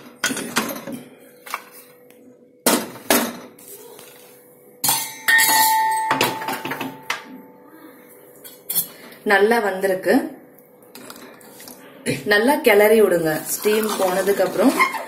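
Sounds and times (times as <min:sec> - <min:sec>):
loud ringing metal clang: 0:04.8 - 0:07.2.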